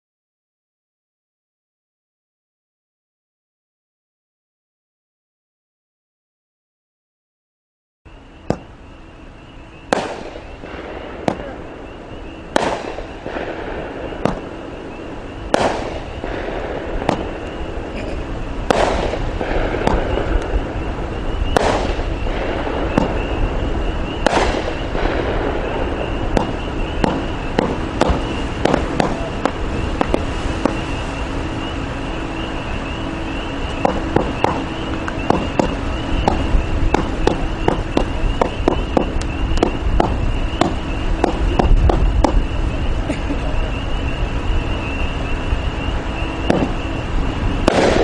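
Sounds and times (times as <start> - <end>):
firework shots with hiss: 8.1 - 48.0
firework pops and crackles: 8.5 - 8.8, 9.8 - 43.2, 46.3 - 48.0.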